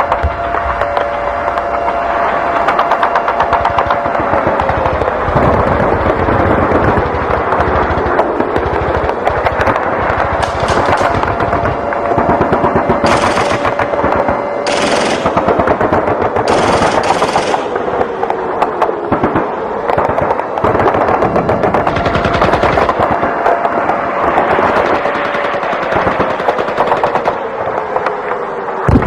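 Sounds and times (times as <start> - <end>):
rapid machine-gun fire: 3.4 - 18.2, 19.1 - 27.4
hissing bursts: 8.6 - 18.2.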